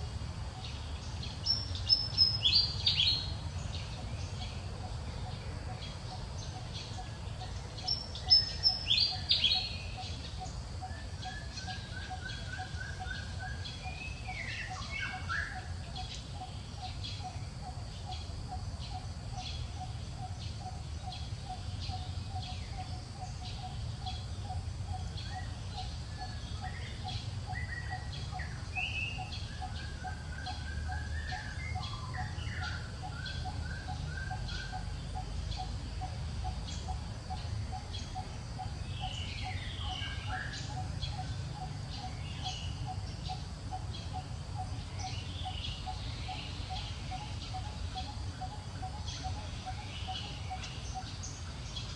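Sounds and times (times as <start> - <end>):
birds chirping and trilling: 0.0 - 51.9.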